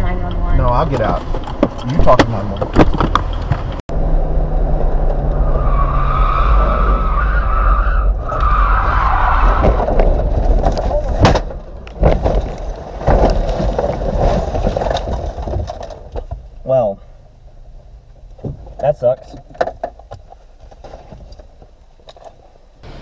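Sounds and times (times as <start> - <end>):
car thumping and crashing: 0.4 - 3.8, 8.1 - 16.6, 18.4 - 21.6
car tyres squealing: 5.2 - 11.3.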